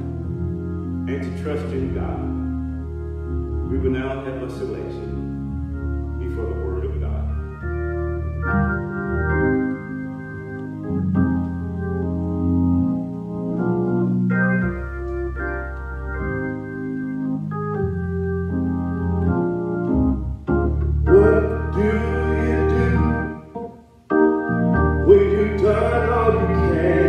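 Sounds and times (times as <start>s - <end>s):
organ playing chords: 0.0s - 27.0s
person singing: 21.1s - 23.6s, 25.0s - 27.0s.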